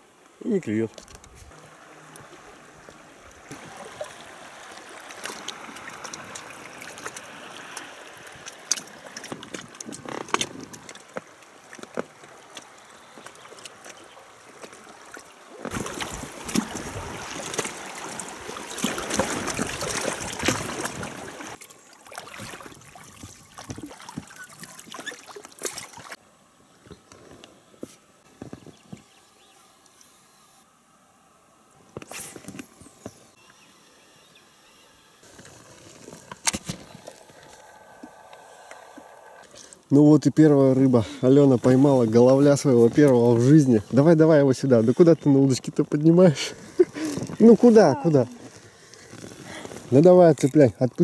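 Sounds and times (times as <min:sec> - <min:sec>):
water trickling and splashing: 0:00.0 - 0:26.2, 0:35.2 - 0:51.0.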